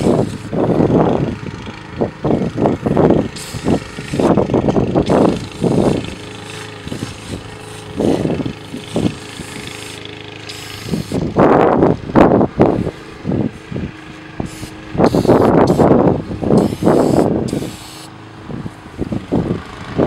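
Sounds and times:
low rumbles: 0.0 - 17.7
aerosol can hissing: 3.4 - 3.7, 8.8 - 11.2, 14.4 - 15.9, 16.6 - 18.1.

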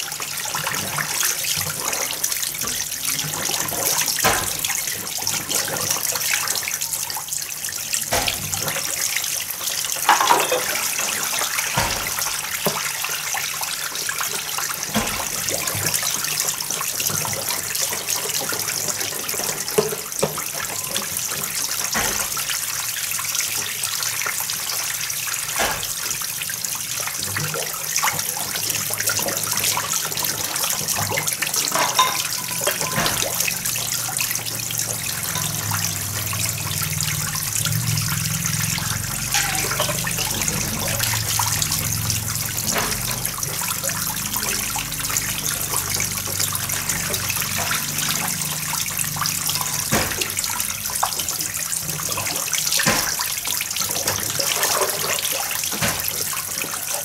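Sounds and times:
water splashing into a basin: 0.0 - 57.0
dishes knocking: 10.1 - 10.9, 31.7 - 33.3.

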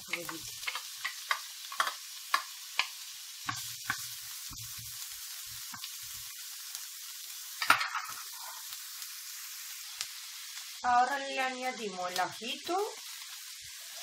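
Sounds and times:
onion sizzling in a frying pan: 0.0 - 14.0
wooden spoon scraping a pan: 7.6 - 8.7.

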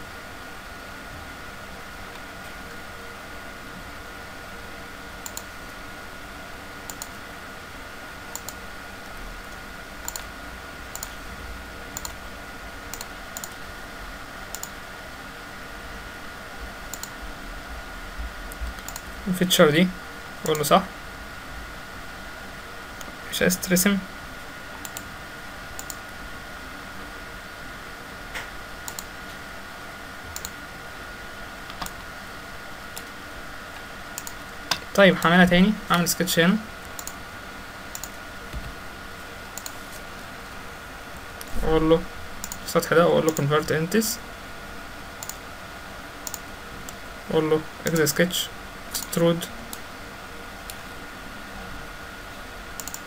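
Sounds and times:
computer mouse buttons clicking: 5.2 - 5.5, 6.9 - 7.2, 8.3 - 8.6, 9.5 - 10.3, 10.9 - 11.2, 12.0 - 12.2, 12.9 - 13.6, 14.5 - 14.8, 16.9 - 17.1, 18.5 - 19.1, 24.8 - 25.1, 25.8 - 26.0, 28.9 - 29.1, 30.4 - 30.6, 31.7 - 32.0, 34.2 - 35.3, 36.8 - 37.2, 37.9 - 38.2, 39.5 - 39.8, 42.4 - 42.6, 45.2 - 45.4, 46.2 - 47.0, 52.8 - 53.0.

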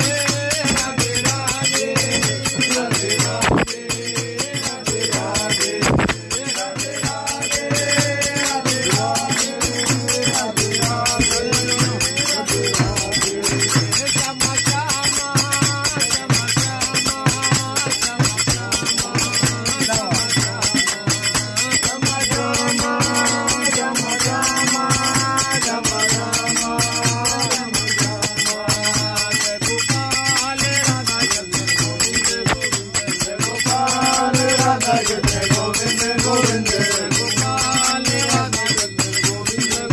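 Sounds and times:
jingling frame drum: 0.0 - 39.9
person singing devotional song: 0.0 - 39.9
small hand cymbals: 0.0 - 39.9.

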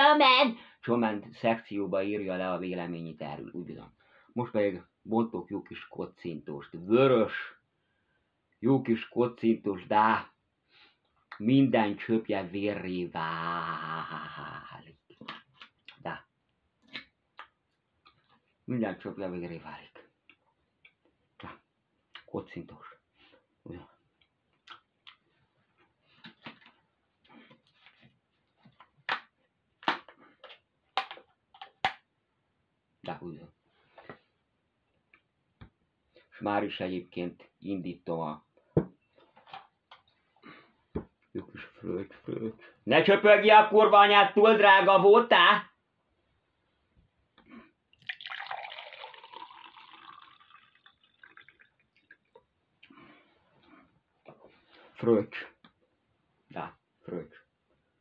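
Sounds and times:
liquid dripping: 47.9 - 52.5
wine pouring into a glass: 48.0 - 52.3.

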